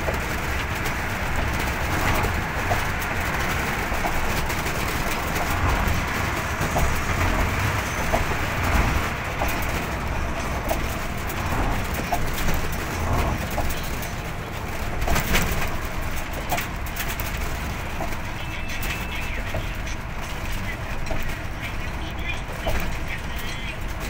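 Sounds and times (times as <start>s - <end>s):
deep rumble: 0.0s - 18.3s
road and wind noise: 0.0s - 24.0s.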